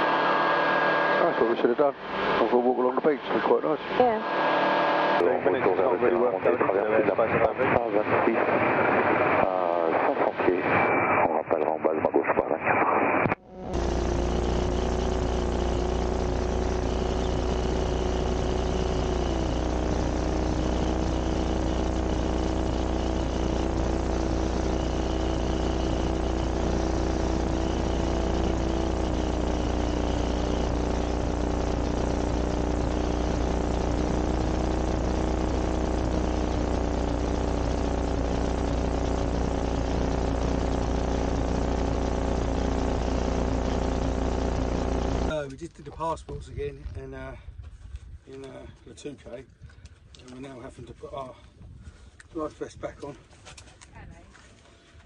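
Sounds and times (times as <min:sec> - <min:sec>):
propeller aircraft engine from cabin: 0:13.6 - 0:45.3.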